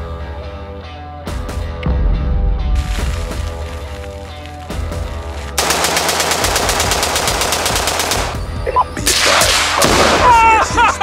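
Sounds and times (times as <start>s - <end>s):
rifle shots: 5.6s - 8.5s, 9.1s - 10.3s.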